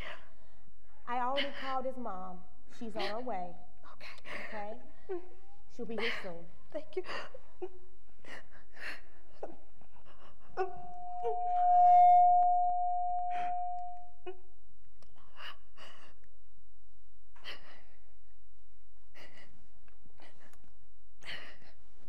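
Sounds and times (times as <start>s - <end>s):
woman crying and sniffling: 2.8s - 11.5s, 19.1s - 20.5s
steady held tone: 10.5s - 14.5s.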